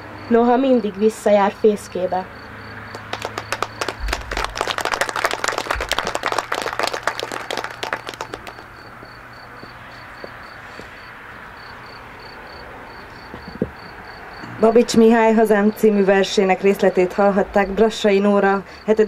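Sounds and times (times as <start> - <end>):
audience applauding: 2.9 - 9.0.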